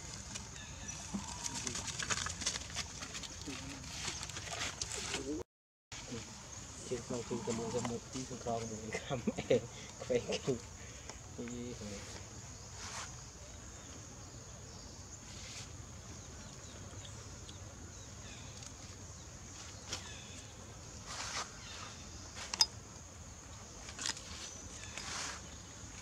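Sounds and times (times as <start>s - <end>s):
rustles and scuffs: 11.9s - 13.2s, 21.0s - 22.6s, 23.8s - 26.0s.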